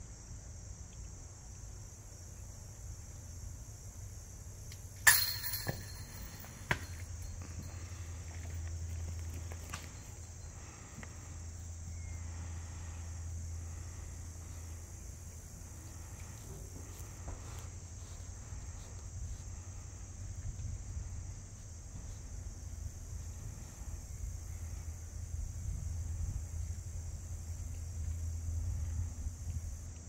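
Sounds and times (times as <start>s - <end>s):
insects chirping chorus: 0.0s - 30.0s.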